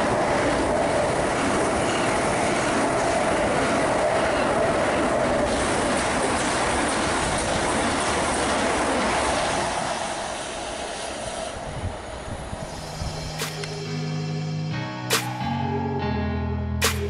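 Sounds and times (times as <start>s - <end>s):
train wheels rushing on rails: 0.0s - 13.8s
music: 12.7s - 17.0s.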